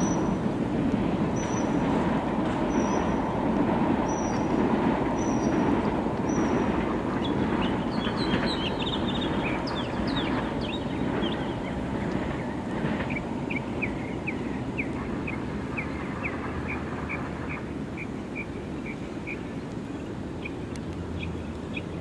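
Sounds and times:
rain: 0.0s - 22.0s
road traffic: 0.0s - 22.0s
birds chirping: 2.6s - 3.2s, 5.2s - 22.0s
bird high chirp: 7.2s - 11.8s.

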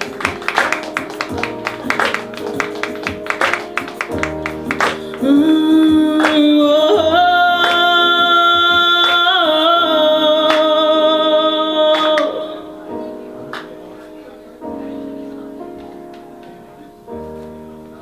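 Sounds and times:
light instrumental accompaniment: 0.0s - 9.3s, 11.9s - 18.0s
woman singing into microphone: 4.9s - 12.9s.

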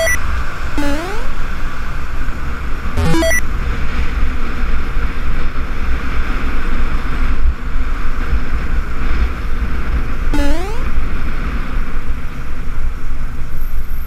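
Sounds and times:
rising electronic chime: 0.8s - 1.3s, 3.0s - 3.4s, 10.4s - 10.8s.

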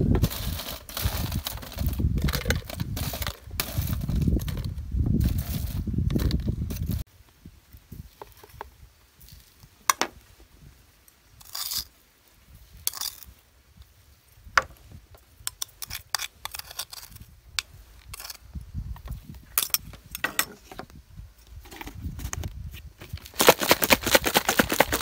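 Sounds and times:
rustling scrapes: 0.0s - 7.0s.

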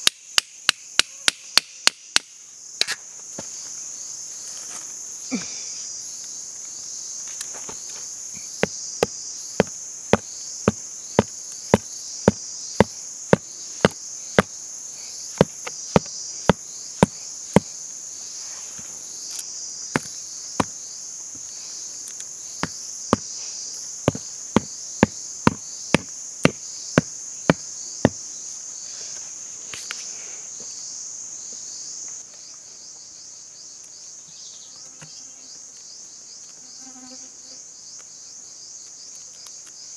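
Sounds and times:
insects shrilling: 0.0s - 39.9s
sharp evenly spaced knocks: 8.6s - 14.5s, 15.3s - 17.7s, 24.0s - 28.2s.

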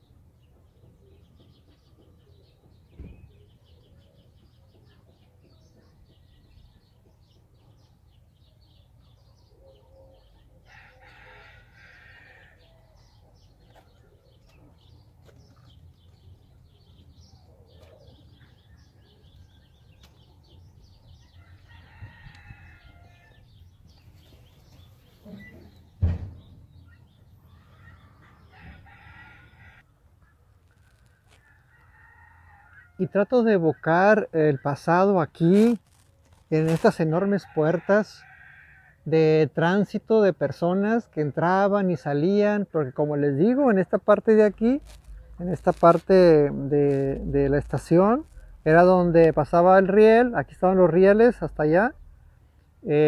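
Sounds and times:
small birds chirping: 0.0s - 37.6s, 38.2s - 53.0s
roosters crowing faintly: 8.7s - 33.2s
sharp thump: 26.0s - 26.7s.

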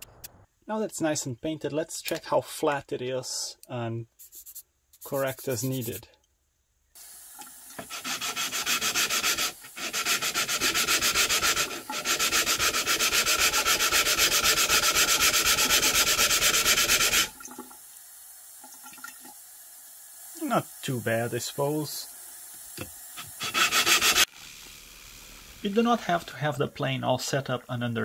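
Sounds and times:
plane lapped on wet sandpaper: 4.2s - 6.0s, 7.8s - 17.2s
running water hiss: 4.2s - 6.0s, 7.0s - 28.0s.

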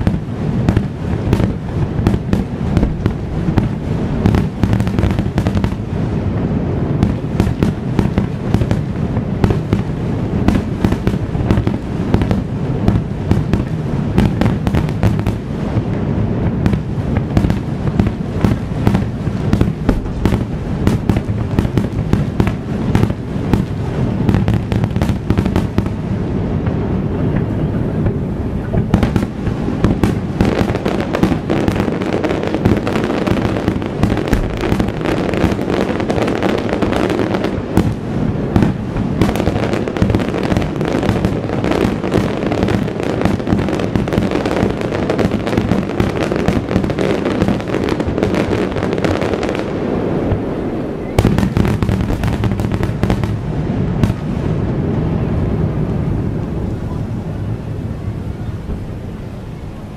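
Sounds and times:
firework shells bursting: 0.0s - 5.9s, 28.6s - 49.4s.

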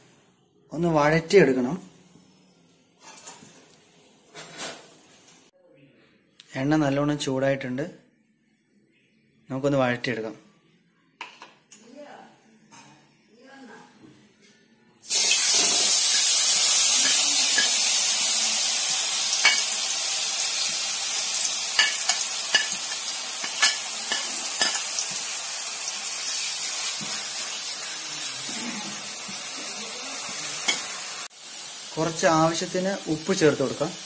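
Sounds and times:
vegetables sizzling in hot oil: 15.0s - 34.0s
steel spoon scraping and tapping: 17.0s - 17.8s, 19.4s - 19.7s, 21.8s - 25.2s.

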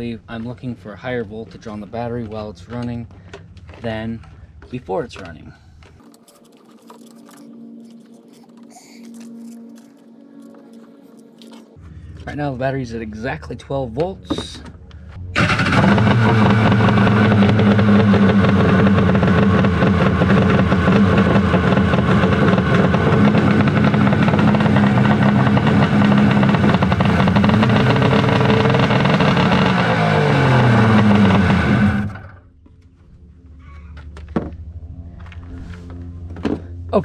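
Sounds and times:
jet-ski engine running: 15.4s - 32.5s.

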